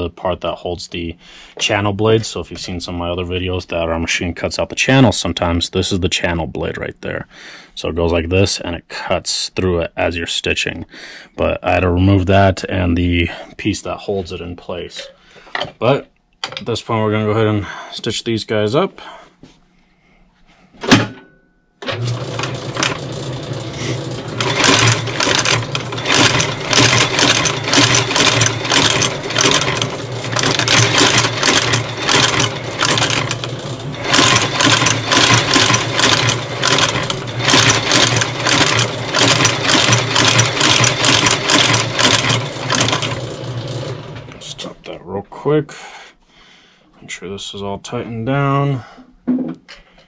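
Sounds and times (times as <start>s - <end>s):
stitching machine running: 21.8s - 44.6s.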